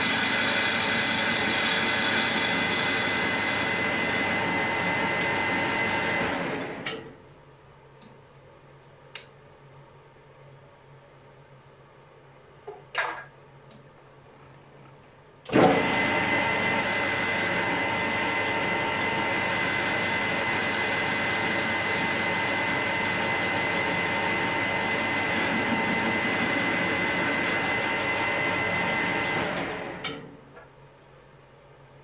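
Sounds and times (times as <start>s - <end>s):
metal lathe whining: 0.0s - 6.8s, 15.5s - 30.1s.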